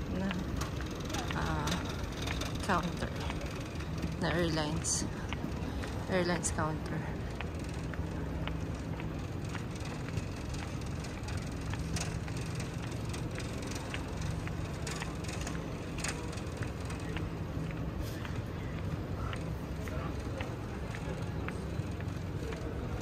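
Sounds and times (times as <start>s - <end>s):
scattered clicks and knocks: 0.0s - 18.0s.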